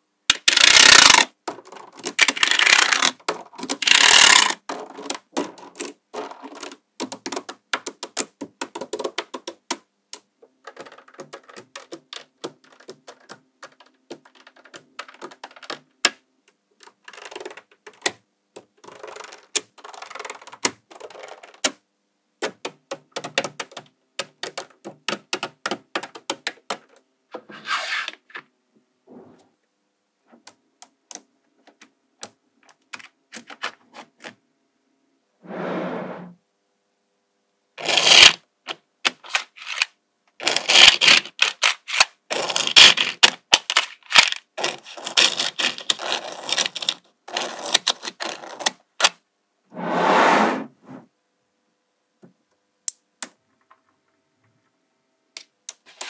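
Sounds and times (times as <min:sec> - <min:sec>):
magnetic balls clicking together: 0:00.3 - 0:16.2, 0:16.8 - 0:21.8, 0:22.4 - 0:27.0
balls rattling: 0:10.5 - 0:15.9.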